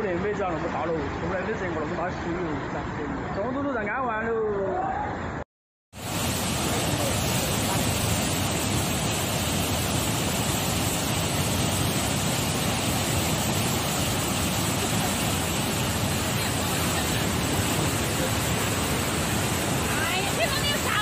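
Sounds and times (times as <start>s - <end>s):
floodwater rushing and churning: 6.0s - 21.0s.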